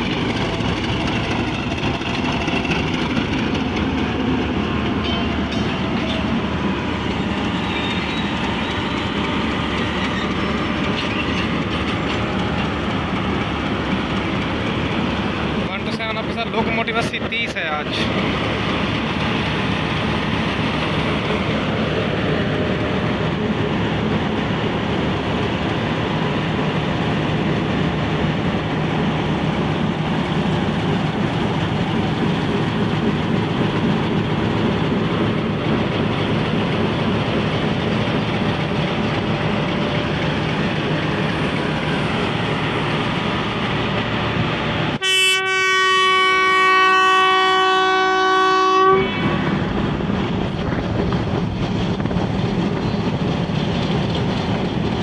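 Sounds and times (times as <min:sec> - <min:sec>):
diesel locomotive engine running: 0:00.0 - 0:55.0
locomotive horn blast: 0:45.0 - 0:49.7.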